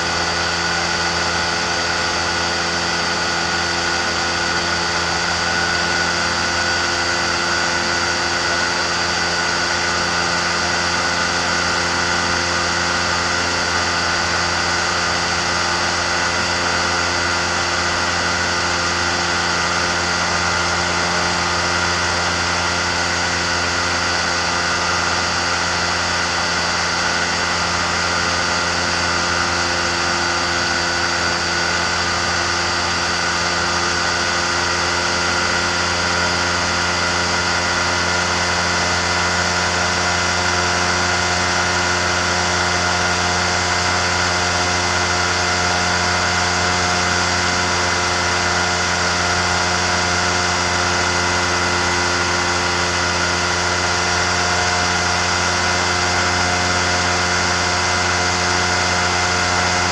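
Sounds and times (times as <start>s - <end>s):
microlight engine and propeller drone: 0.0s - 59.9s.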